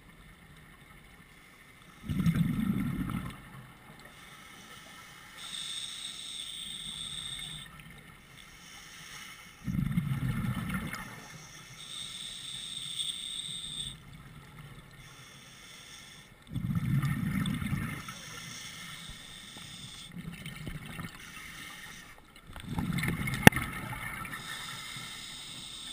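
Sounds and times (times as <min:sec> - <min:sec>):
exhaled bubbles: 0:02.0 - 0:03.6, 0:09.6 - 0:11.2, 0:16.5 - 0:18.2, 0:22.4 - 0:24.8
regulator hissing inhalation: 0:04.1 - 0:07.7, 0:08.3 - 0:09.7, 0:11.0 - 0:14.0, 0:15.0 - 0:16.4, 0:18.0 - 0:20.1, 0:21.2 - 0:22.2, 0:24.3 - 0:25.9.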